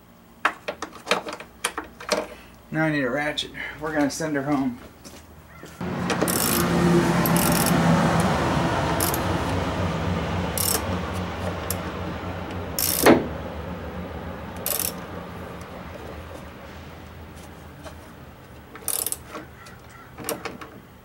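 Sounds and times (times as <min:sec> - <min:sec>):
socket ratchet clicking: 0:12.8 - 0:13.1, 0:14.6 - 0:15.0, 0:18.8 - 0:19.2
sharp metal clacks: 0:12.8 - 0:13.3.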